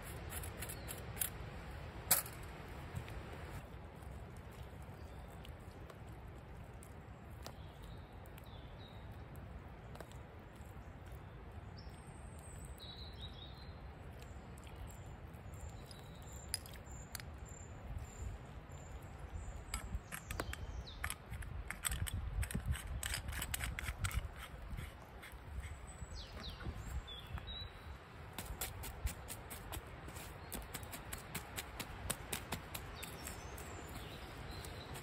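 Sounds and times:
metal bottle and cup clinking: 2.1 - 2.4.

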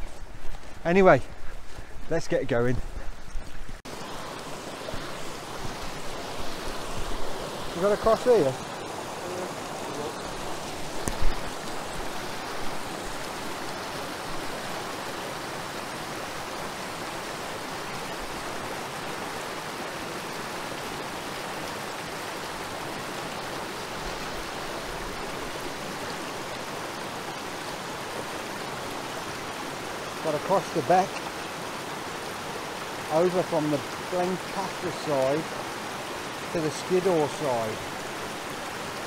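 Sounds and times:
stream rushing over rocks: 1.8 - 39.0.

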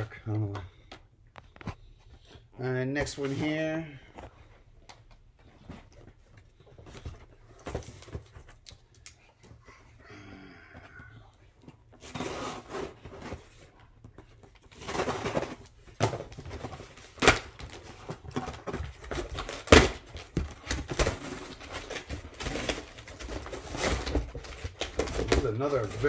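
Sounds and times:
cardboard flaps rustling and scraping: 11.9 - 26.0.

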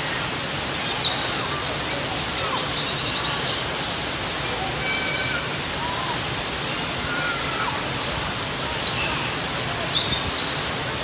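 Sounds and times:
waterfall rushing onto rock: 0.0 - 11.0.

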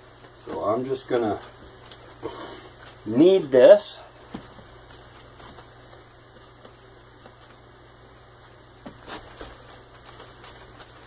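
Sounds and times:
steady low hum: 0.0 - 11.0
kneading dough knocks and rustles: 4.2 - 7.6.

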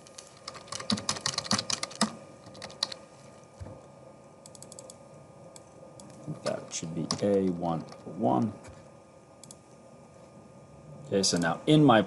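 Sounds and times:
computer keyboard typing: 0.2 - 3.0, 4.4 - 5.0, 7.0 - 8.5.

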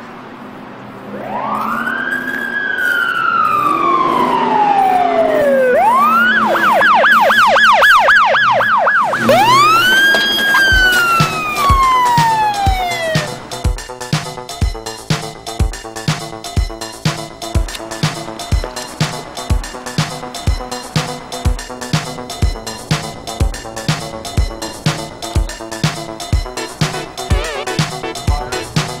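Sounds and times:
siren wailing and yelping: 1.1 - 13.8, 17.4 - 28.9
dance music kick drum: 10.6 - 29.0.

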